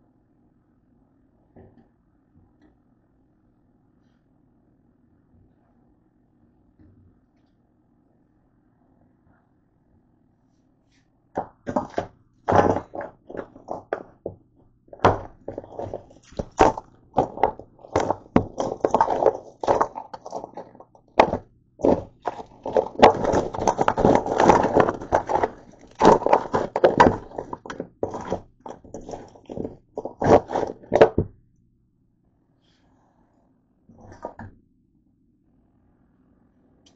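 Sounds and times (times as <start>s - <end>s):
handling knocks and rubbing: 11.4s - 31.3s.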